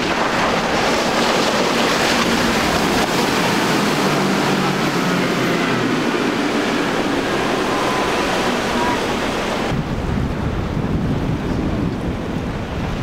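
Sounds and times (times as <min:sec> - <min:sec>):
outboard motors droning: 0:00.0 - 0:10.7
rush of hull spray: 0:00.0 - 0:13.0.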